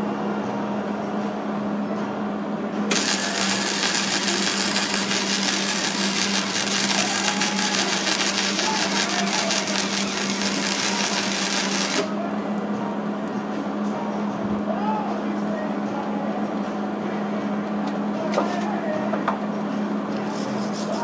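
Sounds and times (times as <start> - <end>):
welder arc crackling and sizzling: 2.9 - 12.1
steady low hum: 2.9 - 14.4.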